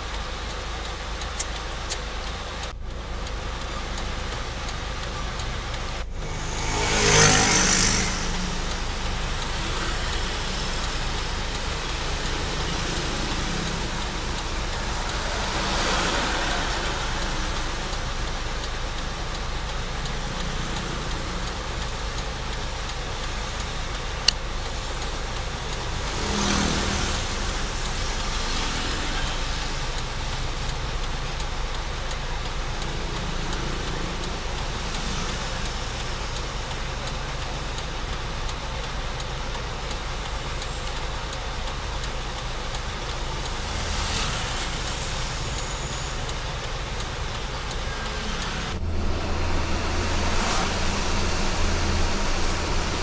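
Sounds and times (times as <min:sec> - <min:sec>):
street traffic hum: 0:00.0 - 0:53.0
sharp click: 0:01.2 - 0:02.8
vehicle passing close by: 0:05.6 - 0:19.0, 0:25.8 - 0:29.9, 0:43.4 - 0:45.6, 0:47.0 - 0:53.0.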